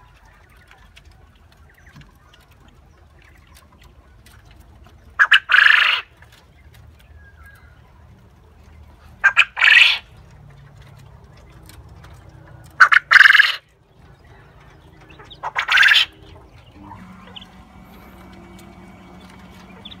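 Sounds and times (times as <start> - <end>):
quail crowing: 5.1 - 6.1, 9.2 - 10.2, 11.6 - 20.0.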